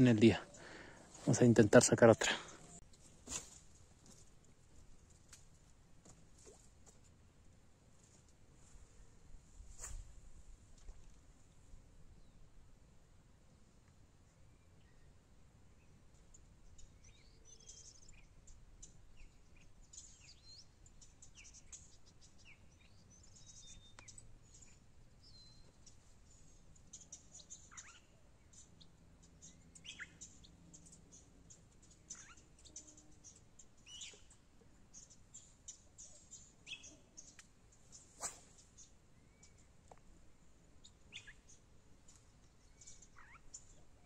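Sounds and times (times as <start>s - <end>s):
short high bird chirps: 38.0s - 39.6s, 42.8s - 43.5s
downward sliding bird calls: 38.2s - 38.6s.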